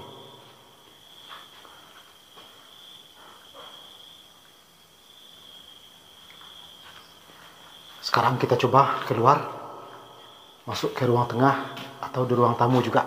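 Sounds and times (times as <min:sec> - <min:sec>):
crickets trilling: 0:00.0 - 0:13.0
soft scuffs of movement: 0:00.4 - 0:03.4, 0:06.3 - 0:08.2.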